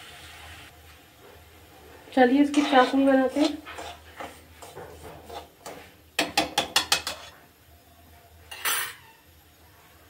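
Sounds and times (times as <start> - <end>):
spoon scraping pan: 2.2 - 7.4
spoon knocking against iron pan: 5.6 - 7.3.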